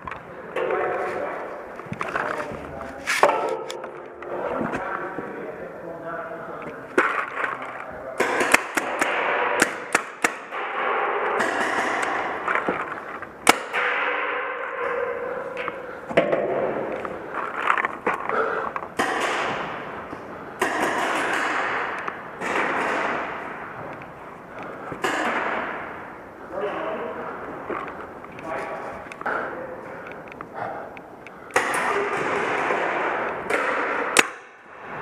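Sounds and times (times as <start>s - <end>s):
paintball markers firing: 7.0s - 14.3s, 19.0s - 20.0s, 20.6s - 23.6s.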